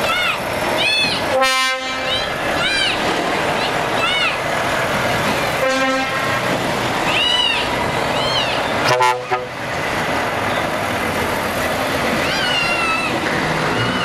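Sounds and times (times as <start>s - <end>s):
truck diesel engines running: 0.0s - 14.0s
air horn blast: 1.3s - 2.1s, 5.6s - 6.4s, 8.9s - 9.6s
high rising and falling calls: 7.0s - 8.9s, 11.8s - 14.0s.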